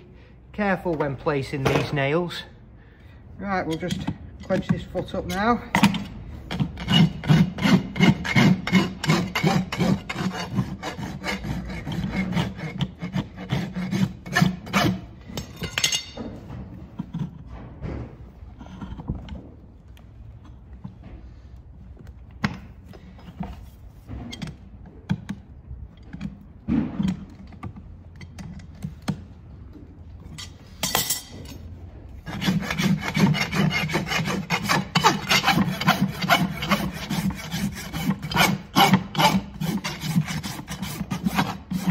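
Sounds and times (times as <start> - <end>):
rasp filing a hoof: 3.6 - 15.6, 30.4 - 41.9.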